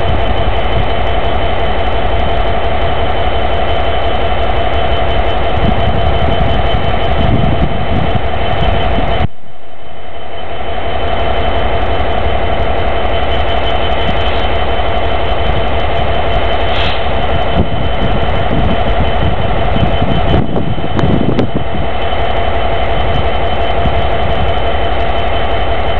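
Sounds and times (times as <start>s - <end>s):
diesel locomotive engine idling: 0.0s - 25.9s.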